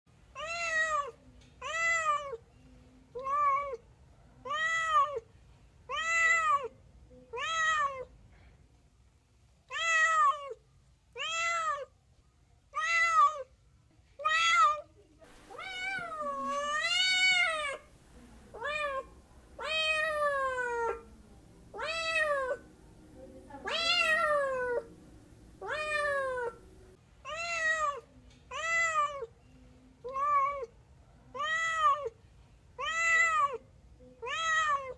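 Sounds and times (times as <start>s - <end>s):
cat meowing: 9.7s - 10.6s, 11.2s - 11.9s, 14.2s - 17.9s, 18.5s - 21.1s, 21.7s - 22.6s, 23.6s - 24.9s, 25.6s - 26.6s, 27.3s - 29.3s, 31.3s - 32.1s, 32.8s - 33.6s, 34.2s - 34.9s.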